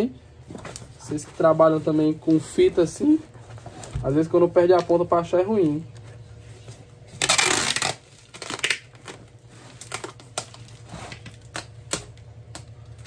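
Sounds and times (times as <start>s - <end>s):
tape and box crackling: 3.8s - 6.1s, 7.1s - 13.0s
packing tape ripping off roll: 7.1s - 13.0s.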